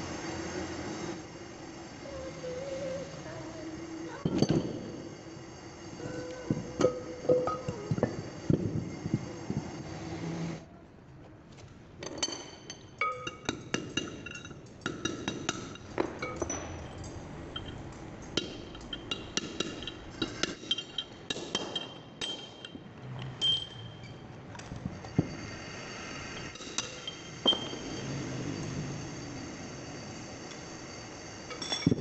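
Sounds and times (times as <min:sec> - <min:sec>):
hammer striking metal drift: 0:04.1 - 0:09.1, 0:12.4 - 0:22.8, 0:25.1 - 0:32.0.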